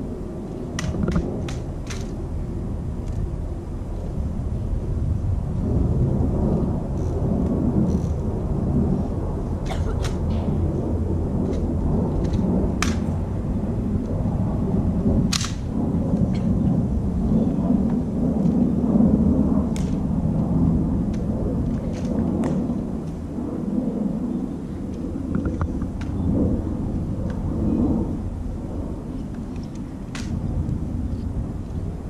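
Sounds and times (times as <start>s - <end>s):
loud low rumbling: 0.0s - 32.0s.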